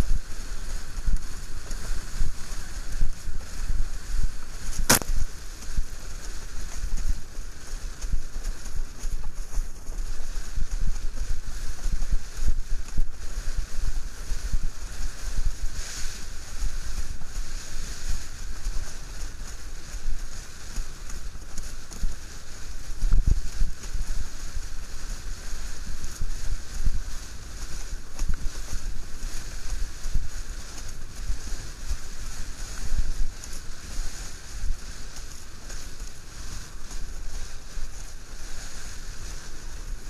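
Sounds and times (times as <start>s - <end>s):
water rushing and chopping: 0.0s - 40.0s
wind buffeting microphone: 0.0s - 40.0s
sharp knock: 4.8s - 5.2s.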